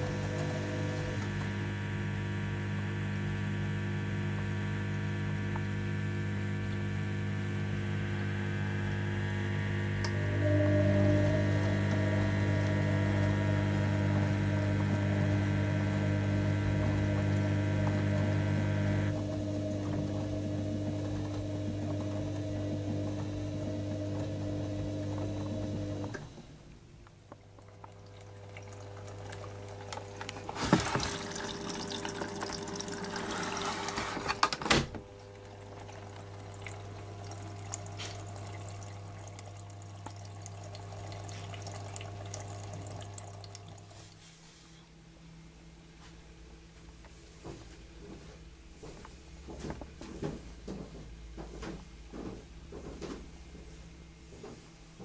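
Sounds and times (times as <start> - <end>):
washing machine drum spinning: 9.9 - 26.3, 28.3 - 43.9
water rushing into drum: 28.9 - 34.2.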